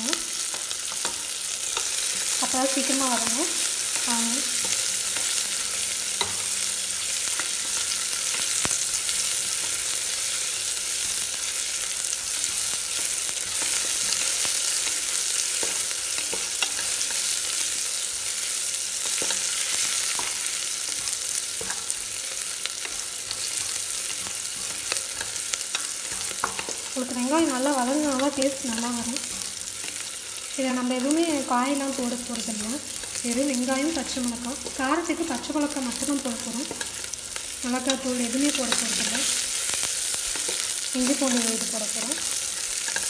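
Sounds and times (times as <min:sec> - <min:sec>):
onions sizzling in oil: 0:00.0 - 0:43.0
spatula stirring and scraping: 0:18.9 - 0:30.4.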